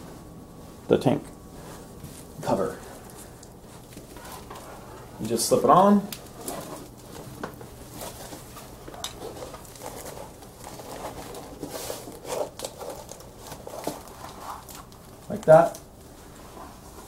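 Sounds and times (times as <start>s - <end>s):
faint steady hum: 0.0s - 17.0s
cardboard scraping and rustling: 6.3s - 15.0s.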